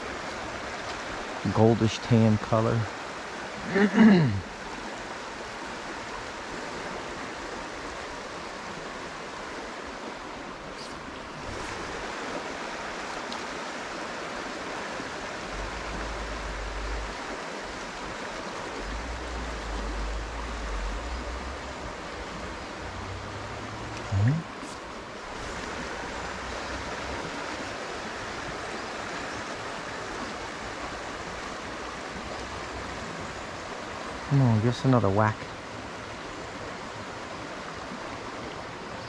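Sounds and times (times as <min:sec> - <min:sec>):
stream water rushing: 0:00.0 - 0:39.0
short voice with falling pitch: 0:24.0 - 0:24.5.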